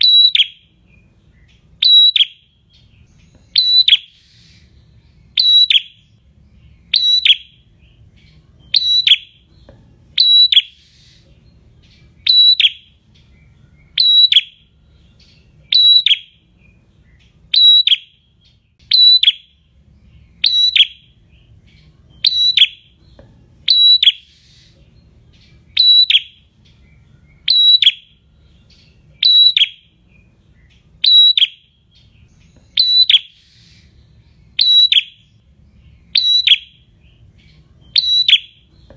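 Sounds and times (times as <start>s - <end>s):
bird singing high call: 0.0s - 38.9s.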